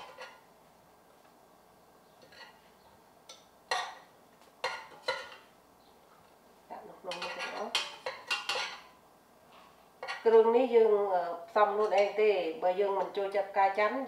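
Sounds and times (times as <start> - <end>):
metal spoon scraping a pot: 0.0 - 0.4, 2.2 - 2.7, 4.6 - 5.5, 7.1 - 8.9.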